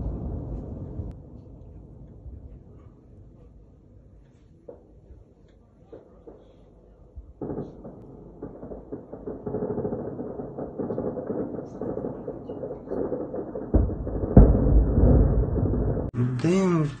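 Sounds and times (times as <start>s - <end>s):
heavy explosion boom: 0.0s - 2.5s, 7.3s - 16.2s
gunfire crackling: 5.9s - 16.2s.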